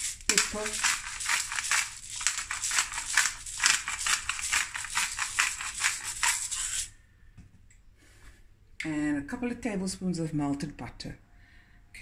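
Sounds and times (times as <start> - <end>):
pepper grinder crackling: 0.0 - 6.9.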